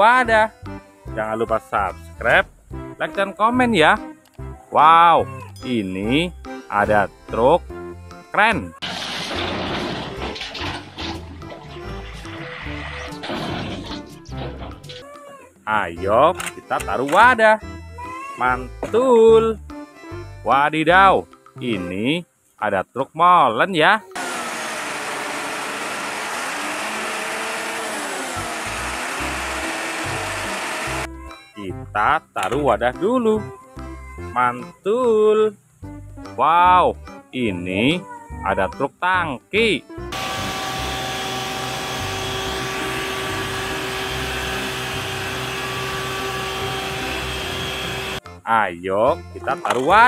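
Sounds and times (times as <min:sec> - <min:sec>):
cement mixer truck running: 0:08.8 - 0:14.8, 0:24.2 - 0:31.1, 0:40.1 - 0:48.2
pump humming: 0:24.2 - 0:31.1, 0:40.1 - 0:48.2.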